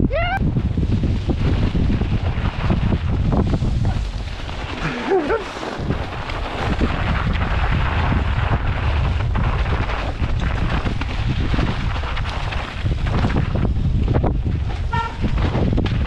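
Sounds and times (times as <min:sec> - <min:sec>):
tyre noise: 0:00.0 - 0:16.0
wind buffeting microphone: 0:00.0 - 0:16.0
bike rattling clicks: 0:08.3 - 0:16.0.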